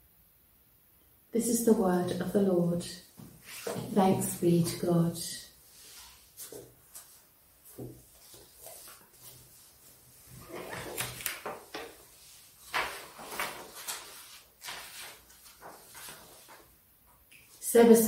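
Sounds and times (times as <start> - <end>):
paper rustling: 3.4 - 4.9, 5.7 - 16.8.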